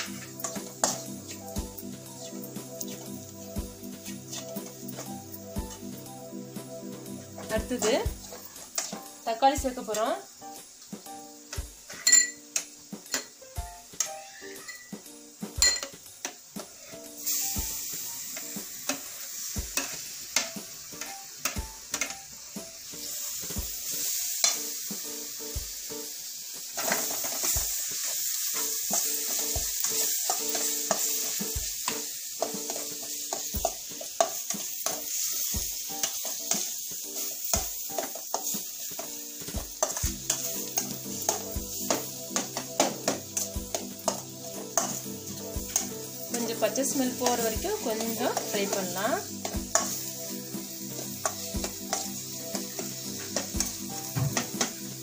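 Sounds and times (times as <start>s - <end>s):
spatula scraping a pan: 0.0s - 1.5s, 2.2s - 5.1s, 7.4s - 9.0s, 26.8s - 54.8s
tomatoes sizzling in oil: 0.0s - 55.0s.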